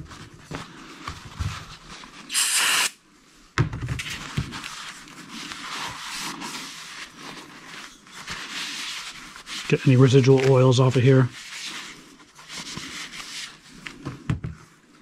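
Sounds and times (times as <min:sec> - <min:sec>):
aerosol spray hiss: 0:02.3 - 0:03.0.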